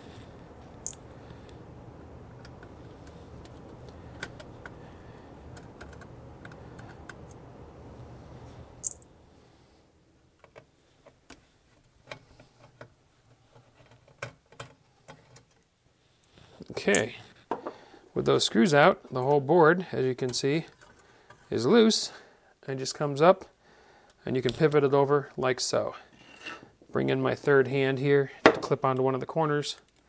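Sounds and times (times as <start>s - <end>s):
low hum: 0.0s - 10.4s.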